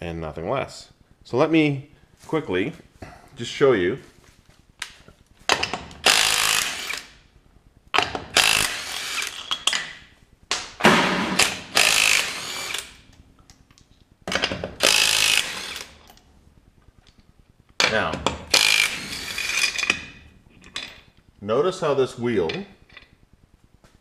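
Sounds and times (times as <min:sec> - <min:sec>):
cordless impact wrench spinning lug nuts: 0:05.5 - 0:07.2, 0:08.0 - 0:09.7, 0:11.2 - 0:13.1, 0:14.6 - 0:16.2, 0:18.4 - 0:20.2.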